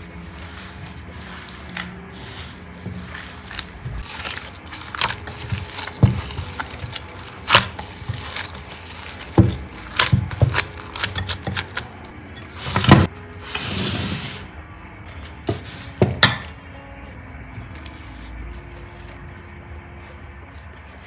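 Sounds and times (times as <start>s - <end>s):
dough squishing in glass bowl: 0.0s - 12.8s.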